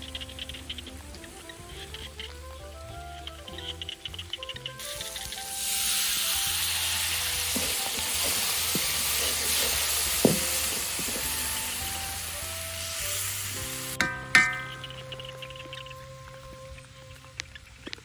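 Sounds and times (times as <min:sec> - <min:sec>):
fish sizzling in a wok: 0:04.8 - 0:16.0.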